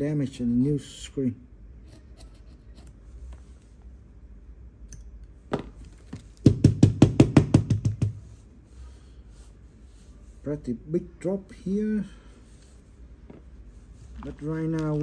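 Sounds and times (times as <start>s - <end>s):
metal tweezers scraping adhesive: 1.8s - 3.2s.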